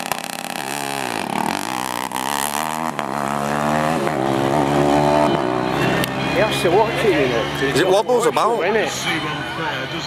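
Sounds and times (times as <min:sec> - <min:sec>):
drag car engine accelerating: 0:00.0 - 0:07.8.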